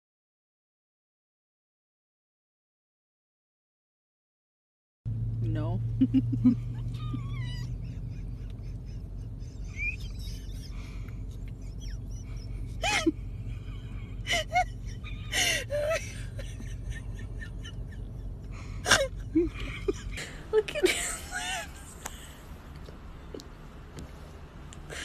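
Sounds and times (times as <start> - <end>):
steady low hum: 5.1 - 25.0
puppy yapping: 6.8 - 8.0.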